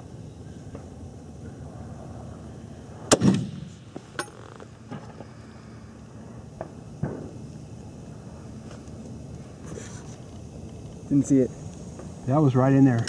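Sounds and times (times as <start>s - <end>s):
rifle shot with echo: 3.1s - 3.8s.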